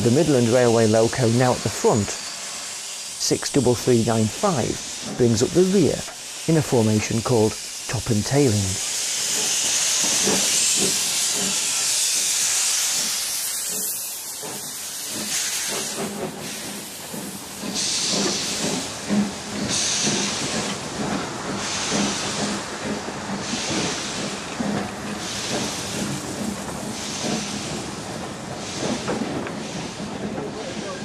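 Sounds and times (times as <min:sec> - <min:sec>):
steam hissing: 0:00.0 - 0:31.0
steam locomotive exhaust beats: 0:00.0 - 0:31.0.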